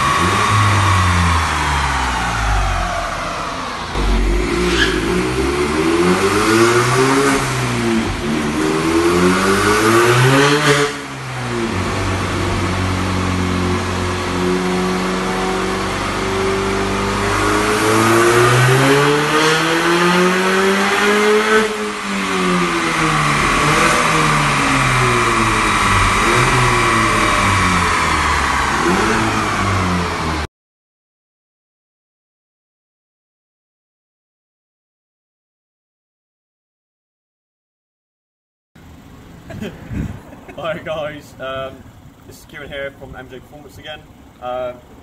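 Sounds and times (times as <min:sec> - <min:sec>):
car engine revving: 0:00.0 - 0:30.5.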